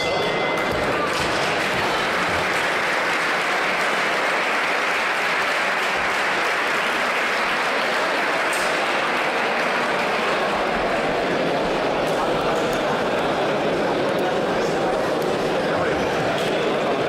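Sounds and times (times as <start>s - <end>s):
audience applauding: 0.6s - 15.7s.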